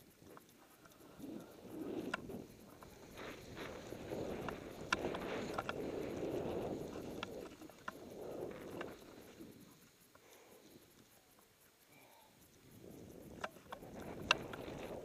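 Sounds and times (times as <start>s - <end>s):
sharp clicks: 0.0s - 11.8s, 12.4s - 15.0s.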